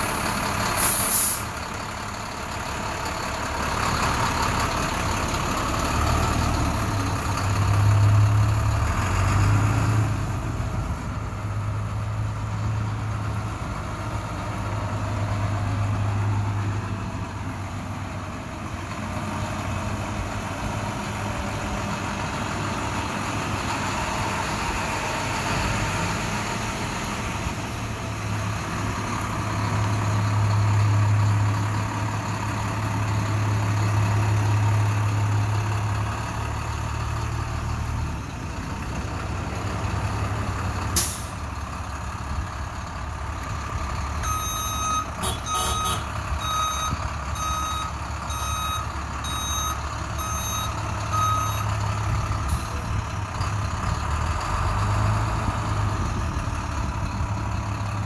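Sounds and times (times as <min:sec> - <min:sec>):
diesel engine humming: 0:00.0 - 0:58.0
backup alarm beeping: 0:44.2 - 0:51.7.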